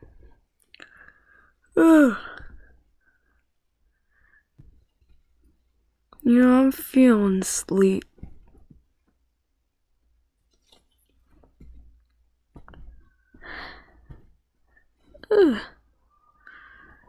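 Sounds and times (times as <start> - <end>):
person sighing: 1.7 - 2.7, 15.1 - 15.9
plush toys rustling: 8.0 - 9.2.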